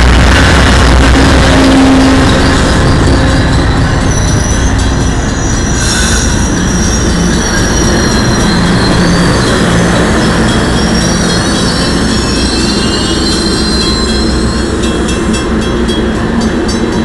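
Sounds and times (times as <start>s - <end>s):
train wheels rumbling on rail: 0.0s - 17.0s
high-pitched wheel squeals: 1.6s - 15.1s.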